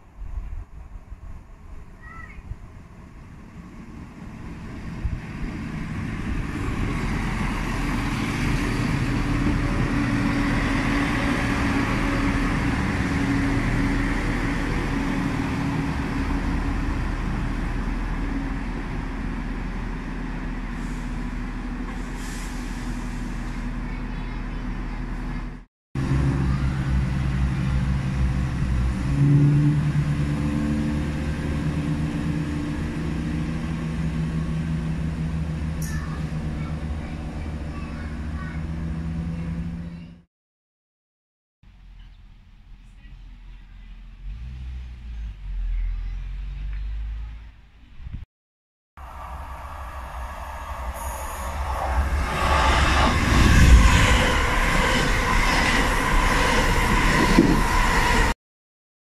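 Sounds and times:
diesel train engines: 0.0s - 40.3s, 49.0s - 58.4s
train wheels on rails: 49.0s - 58.4s.

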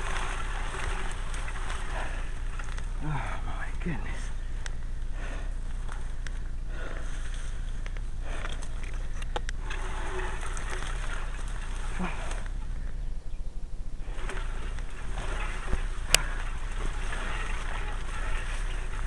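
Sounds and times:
stalks and grass rustling: 0.0s - 19.0s
steady low hum: 0.0s - 19.0s
light clicks: 7.8s - 9.6s.

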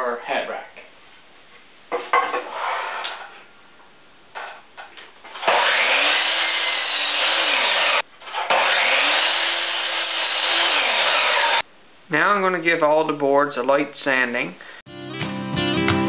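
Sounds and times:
mitre saw cutting wood: 5.4s - 11.6s.

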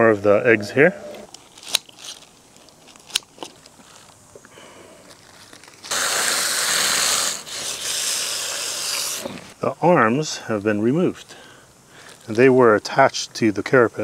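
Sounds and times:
plastic sheet crinkling: 1.3s - 4.2s, 5.1s - 6.0s
hose nozzle spraying water: 5.8s - 9.6s.

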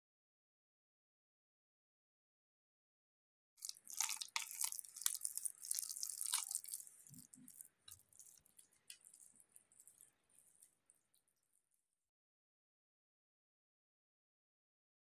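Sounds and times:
wet squishing of meat mixture: 3.6s - 10.7s.

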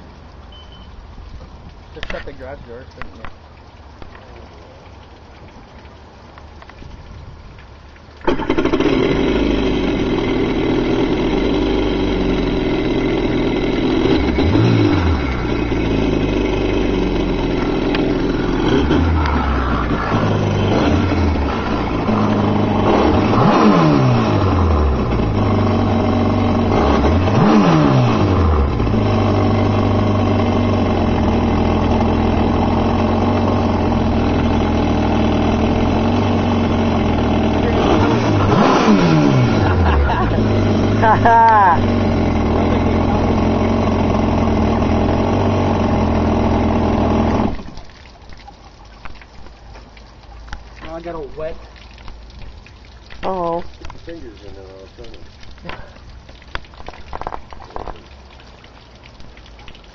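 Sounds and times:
jet ski engine idling and revving: 8.2s - 47.8s.

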